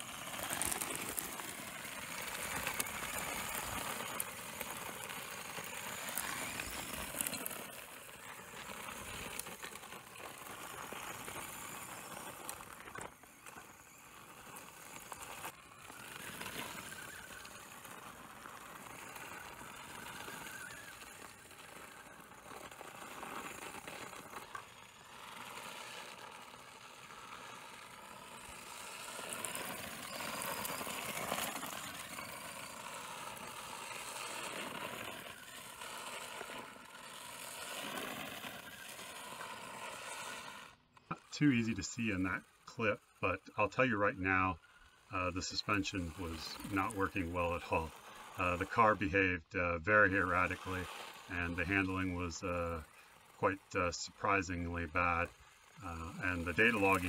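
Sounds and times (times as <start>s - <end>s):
stones clicking under tyres: 0.0s - 41.2s
toy car motor whining: 0.0s - 57.0s.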